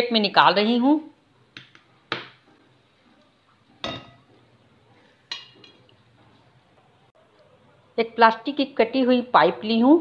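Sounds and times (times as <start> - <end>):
steel kitchenware clinking: 3.8 - 5.9.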